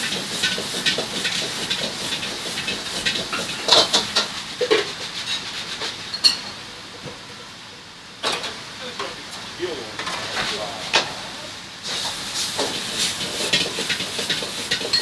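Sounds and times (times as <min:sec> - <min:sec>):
metal utensils clanking on wok: 0:00.0 - 0:05.4, 0:06.1 - 0:06.6, 0:12.6 - 0:15.0
vegetables frying in a wok: 0:00.0 - 0:15.0.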